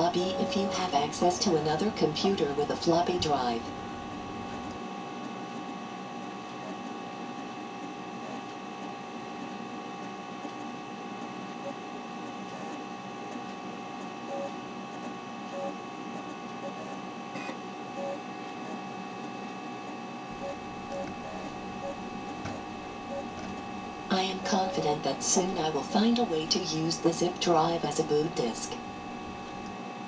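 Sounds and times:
high whining tones: 0:00.0 - 0:04.6, 0:20.3 - 0:28.1
computer machine hum: 0:00.0 - 0:30.0
disk drive ticks: 0:14.3 - 0:25.4.

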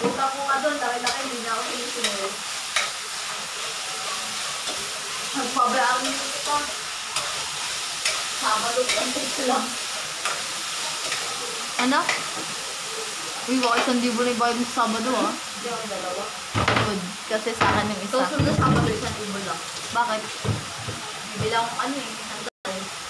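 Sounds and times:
meat sizzling in a wok: 0:00.0 - 0:23.0
metal spatula clicking against pan: 0:02.8 - 0:03.0.

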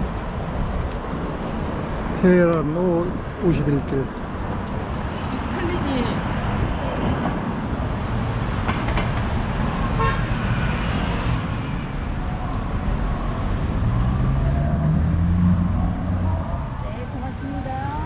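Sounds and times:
road traffic: 0:00.0 - 0:18.0
vehicle engine accelerating: 0:12.7 - 0:18.0.

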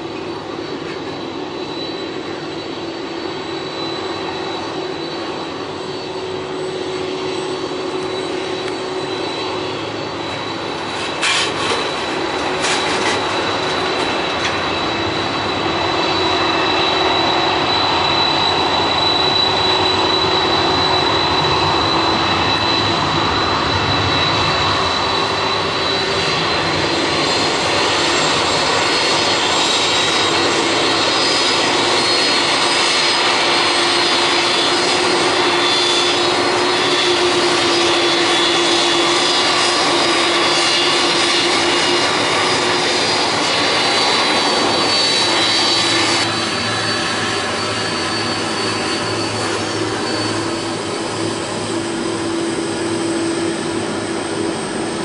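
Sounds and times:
high-pitched jet whine: 0:00.0 - 0:55.0
jet engines rushing: 0:00.0 - 0:55.0.

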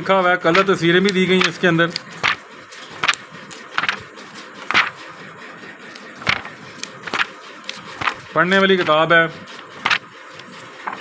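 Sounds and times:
book pages flipping: 0:00.4 - 0:05.2, 0:05.9 - 0:11.0.

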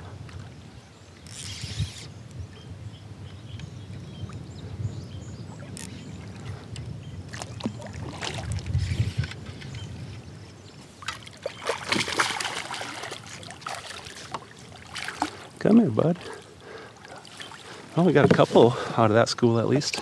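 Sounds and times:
wind rumbling on microphone: 0:00.0 - 0:20.0
fish splashing at water surface: 0:11.1 - 0:15.4.

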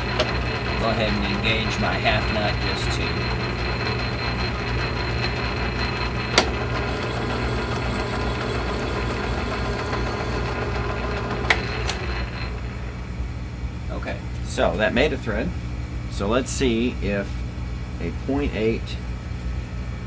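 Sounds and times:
lathe humming: 0:00.0 - 0:13.7.

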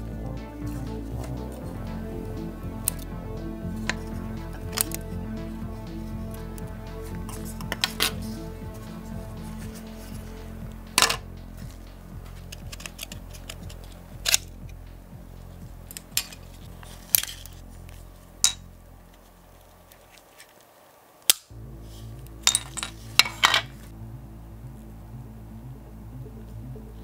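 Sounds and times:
background music: 0:00.0 - 0:20.2, 0:21.5 - 0:27.0
clicks of model car parts: 0:21.2 - 0:21.5.

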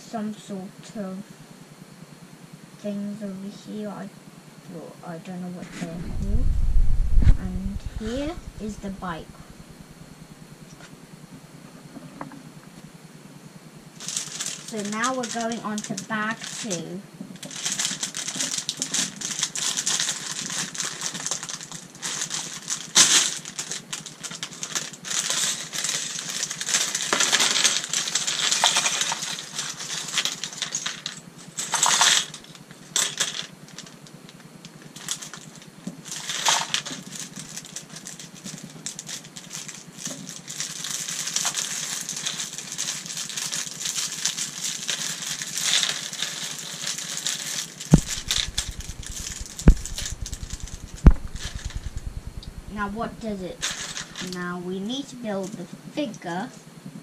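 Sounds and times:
plastic bag crinkling: 0:17.5 - 0:30.9, 0:36.2 - 0:54.3.

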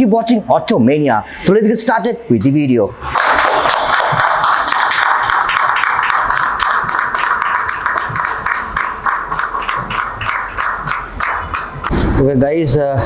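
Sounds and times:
group of people clapping: 0:03.0 - 0:12.0.

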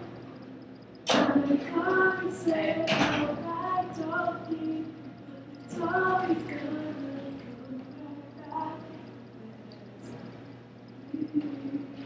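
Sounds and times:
women singing: 0:01.1 - 0:10.2.

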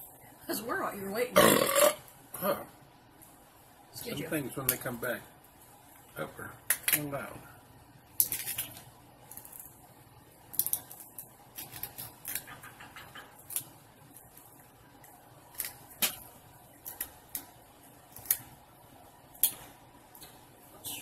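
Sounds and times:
low room hiss: 0:00.0 - 0:21.0
shrimp shells cracking: 0:08.2 - 0:09.8, 0:10.4 - 0:12.6.

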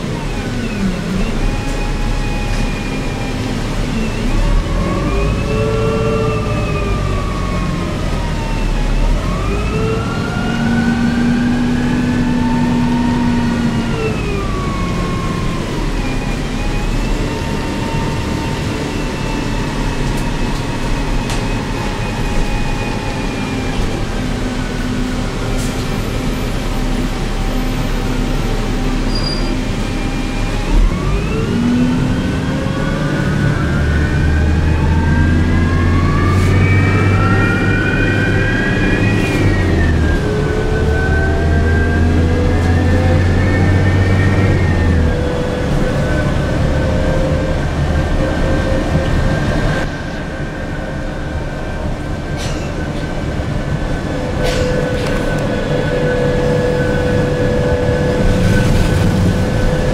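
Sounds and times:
bus engine drone: 0:00.0 - 0:59.9
whine of gliding tones: 0:26.3 - 0:59.9.

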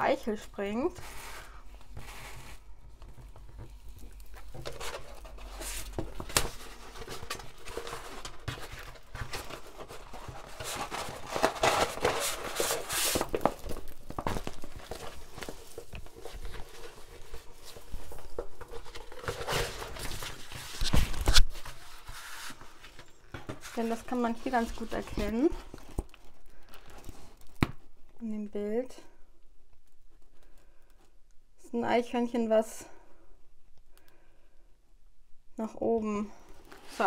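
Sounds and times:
canvas sheet crinkling: 0:03.4 - 0:26.3.

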